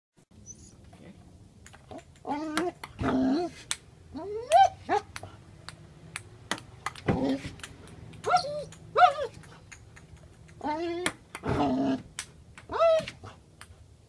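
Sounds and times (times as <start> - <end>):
dog whining yips: 0.4 - 0.9, 4.2 - 5.1, 8.2 - 9.4, 10.6 - 11.7, 12.7 - 13.2.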